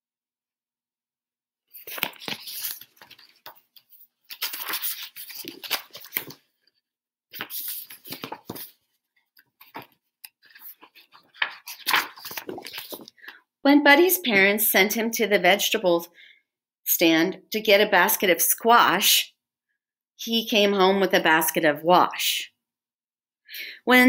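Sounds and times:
paper pages rustling: 0:01.7 - 0:13.4.

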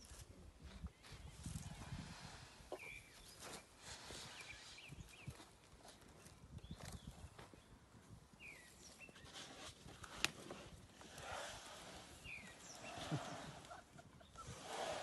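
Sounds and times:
bird chirps: 0:02.7 - 0:03.5, 0:12.2 - 0:14.5.

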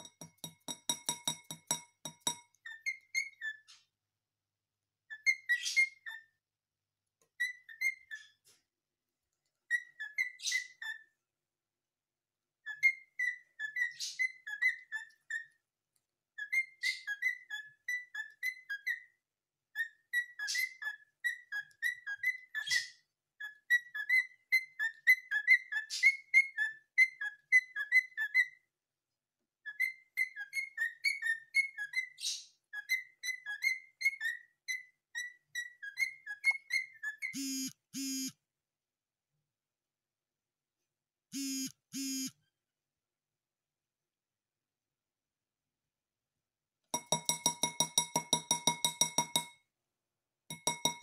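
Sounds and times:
beak tapping ceramic bowl: 0:00.0 - 0:02.6, 0:47.0 - 0:49.6, 0:50.5 - 0:51.0.

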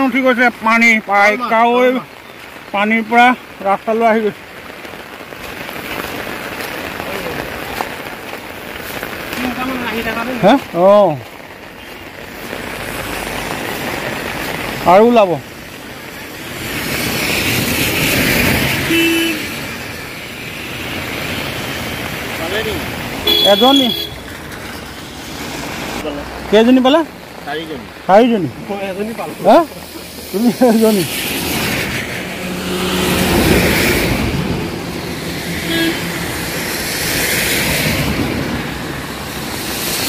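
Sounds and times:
heavy rain pouring: 0:00.0 - 0:40.0
tyre hiss on wet road: 0:00.0 - 0:40.0
vehicle horn toot: 0:18.9 - 0:19.5, 0:23.2 - 0:24.2, 0:35.6 - 0:36.3.

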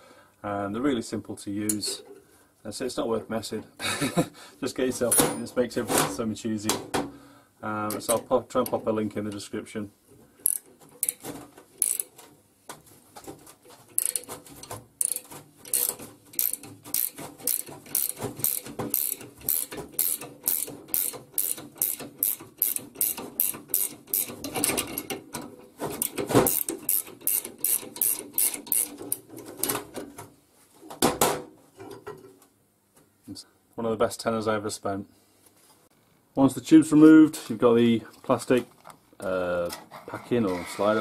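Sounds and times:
ratchet wrench clicking: 0:10.4 - 0:11.2, 0:11.8 - 0:12.1, 0:14.0 - 0:14.3, 0:15.0 - 0:25.1, 0:26.0 - 0:29.2.

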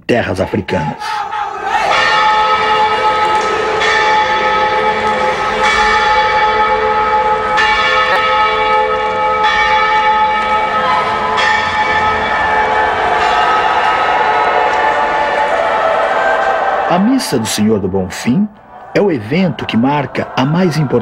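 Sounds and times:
church bell tolling: 0:01.9 - 0:15.6.

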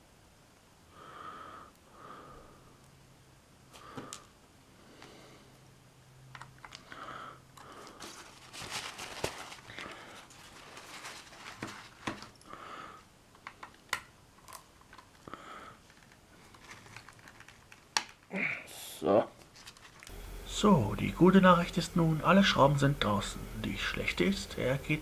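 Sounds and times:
paper towel crinkling: 0:07.8 - 0:12.4, 0:19.4 - 0:20.2.

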